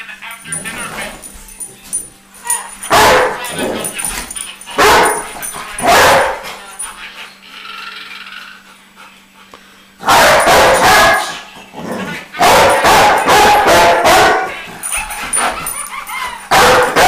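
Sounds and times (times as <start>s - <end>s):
dog barking loudly: 2.9s - 4.0s, 4.7s - 6.4s, 10.0s - 11.4s, 12.4s - 15.8s, 16.4s - 17.0s.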